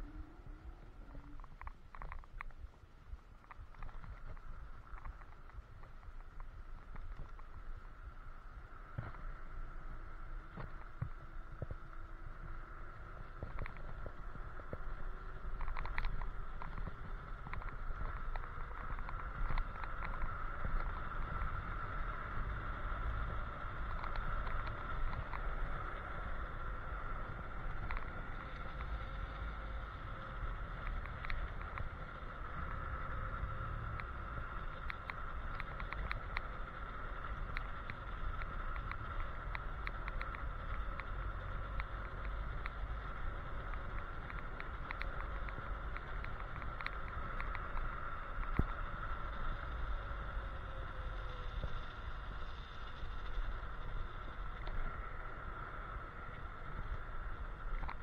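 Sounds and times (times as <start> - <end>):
scooter motor whine: 0.0 - 1.8, 8.4 - 58.0
wind rumble on microphone: 0.0 - 58.0
clicks and rattles from bumps: 13.2 - 21.6.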